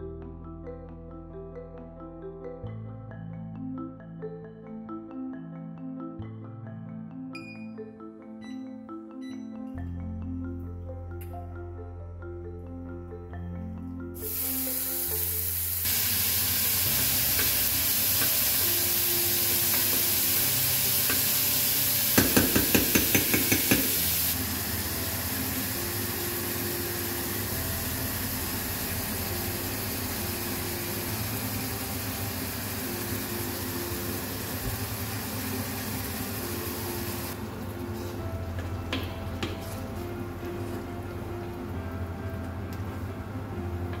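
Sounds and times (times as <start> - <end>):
meat sizzling in a saucepan: 14.2 - 37.4
utensil knocking against pan: 22.1 - 24.1.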